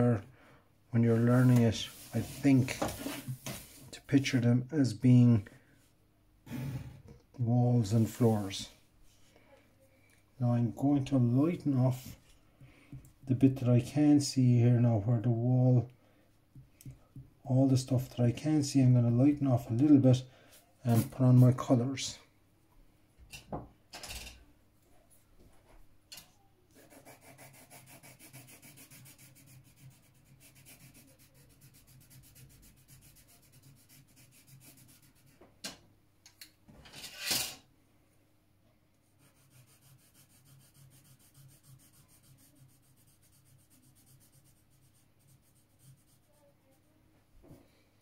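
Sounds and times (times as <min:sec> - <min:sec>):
coloured pencil shading on paper: 0:26.8 - 0:35.4, 0:39.1 - 0:47.0.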